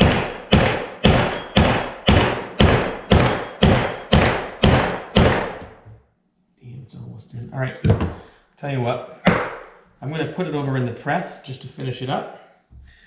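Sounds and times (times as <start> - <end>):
hammer striking steel punch: 0.0 - 5.8.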